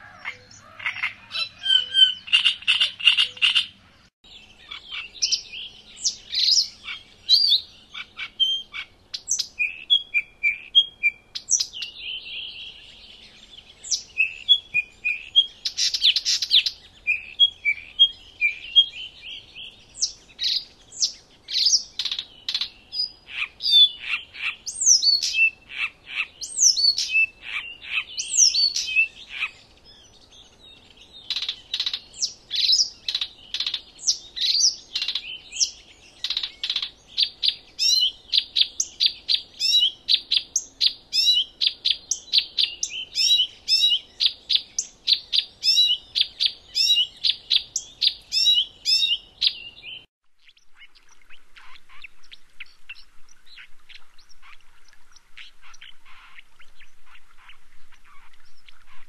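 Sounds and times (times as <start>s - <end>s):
bird chirping and whistling: 1.3s - 3.6s, 4.7s - 12.6s, 20.0s - 25.6s, 26.4s - 29.5s, 31.3s - 50.0s.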